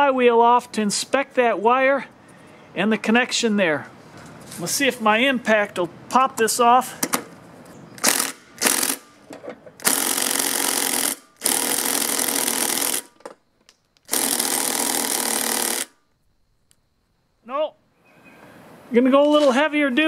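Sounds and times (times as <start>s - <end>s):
impact driver hammering: 8.0s - 13.2s, 14.1s - 16.0s.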